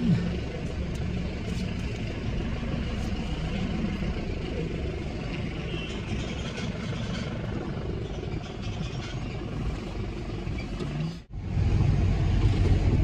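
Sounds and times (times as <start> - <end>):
car engine droning: 0.0 - 13.0
road noise: 0.0 - 13.0.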